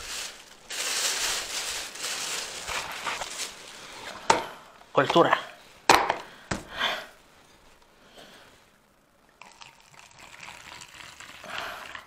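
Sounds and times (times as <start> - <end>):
wine trickling into plastic cup: 9.4 - 12.0.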